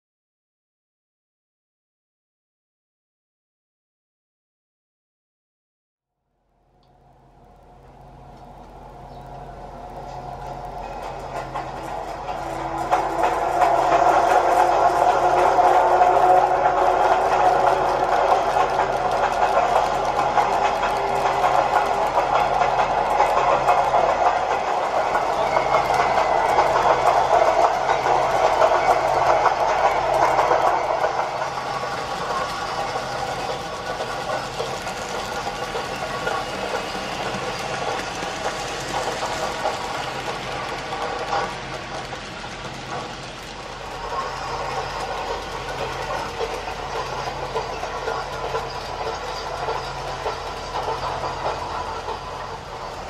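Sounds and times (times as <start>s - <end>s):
model train running on track: 6.4s - 53.0s.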